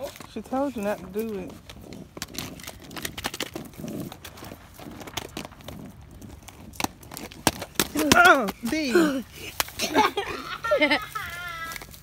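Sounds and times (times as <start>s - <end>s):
roller skates clattering on concrete: 0.0s - 12.0s.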